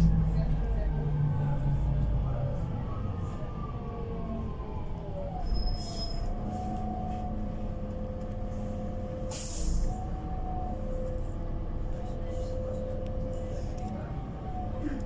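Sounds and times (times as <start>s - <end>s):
bus drivetrain whine and hum: 0.0s - 15.0s
air brake hisses: 5.7s - 6.7s, 9.3s - 10.0s.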